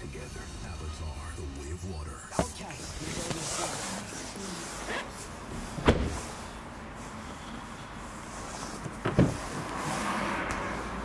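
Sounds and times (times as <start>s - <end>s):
car doors thudding shut: 5.5s - 6.5s, 9.0s - 9.5s.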